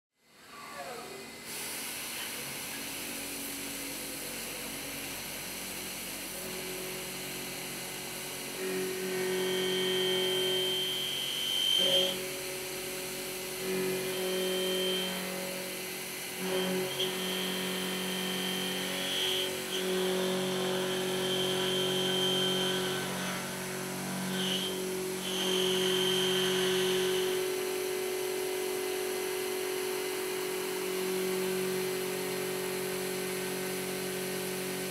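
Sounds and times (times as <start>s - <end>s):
milling spindle cutting steel: 8.5s - 28.2s.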